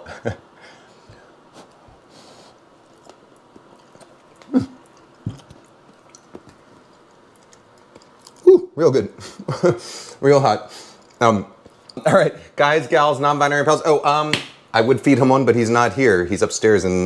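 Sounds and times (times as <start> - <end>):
person chewing: 2.5 - 8.5.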